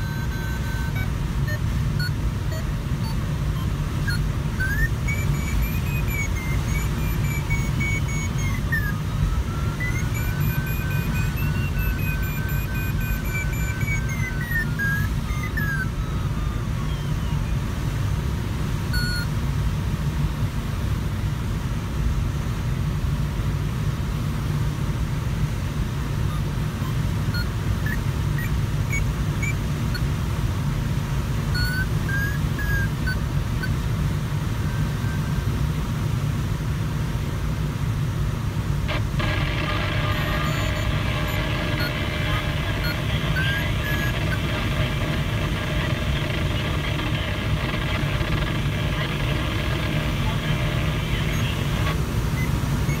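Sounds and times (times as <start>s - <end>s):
faint high beeps: 0.0s - 17.9s, 18.9s - 19.4s, 26.2s - 30.1s, 31.5s - 35.6s, 38.9s - 53.0s
cockpit airflow rush: 38.9s - 53.0s.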